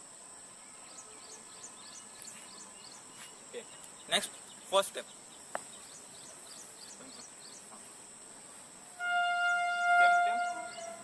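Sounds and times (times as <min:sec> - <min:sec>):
insects droning: 0:00.0 - 0:11.0
horn steady note: 0:08.9 - 0:11.0.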